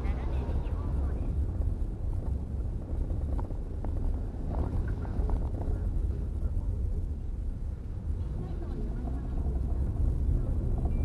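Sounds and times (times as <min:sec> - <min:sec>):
car engine and tyre rumble: 0:00.0 - 0:11.0.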